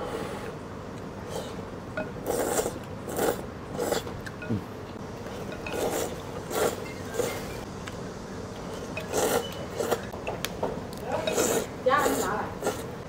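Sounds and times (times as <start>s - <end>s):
man slurping noodles: 2.2s - 4.1s, 5.7s - 7.4s.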